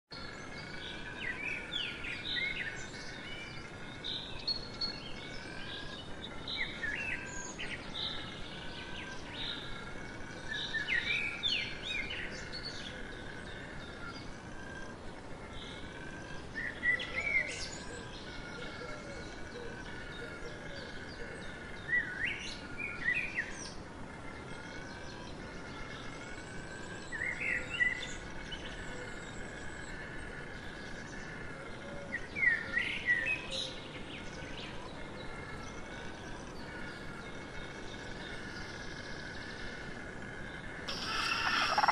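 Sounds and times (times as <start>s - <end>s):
high-pitched bird chorus: 32.1s - 41.9s.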